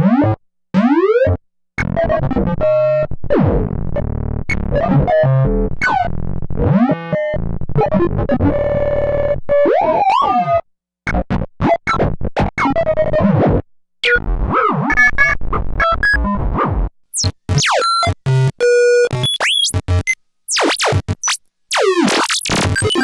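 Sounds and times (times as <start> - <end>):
synthesizer robot blips and chirps: 17.1 - 23.0.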